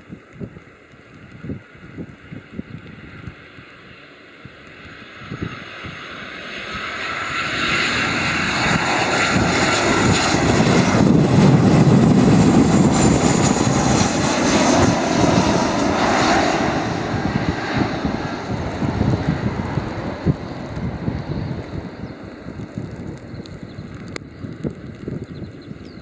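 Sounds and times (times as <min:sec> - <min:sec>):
high jet fan whine: 0:00.0 - 0:26.0
jet airliner flying overhead: 0:00.0 - 0:26.0.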